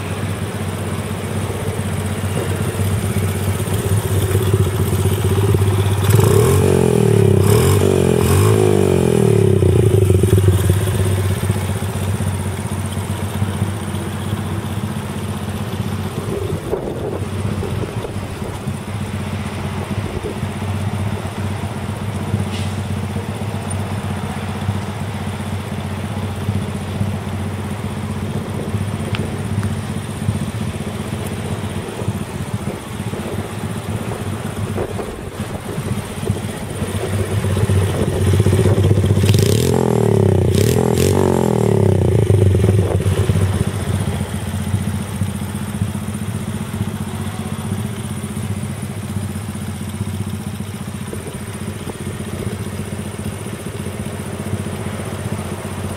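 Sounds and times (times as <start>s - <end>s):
small engine idling and revving: 0.0s - 55.9s.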